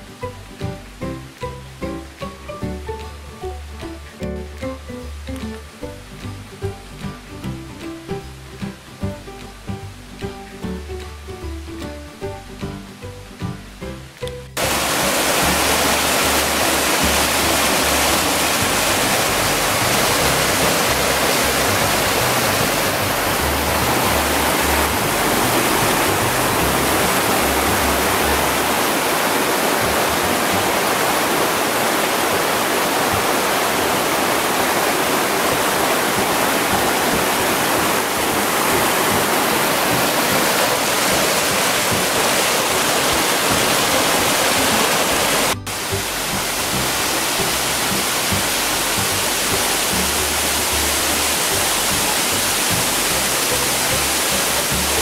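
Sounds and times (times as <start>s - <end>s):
waterfall rushing over rocks: 14.6s - 55.0s.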